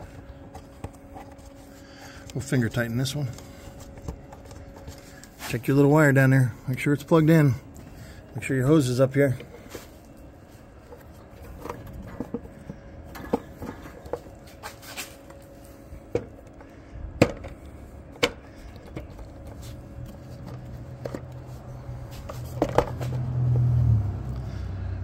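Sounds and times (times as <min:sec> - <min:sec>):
hard plastic parts clicking and knocking: 0:10.9 - 0:14.3, 0:16.1 - 0:19.6, 0:22.2 - 0:23.2.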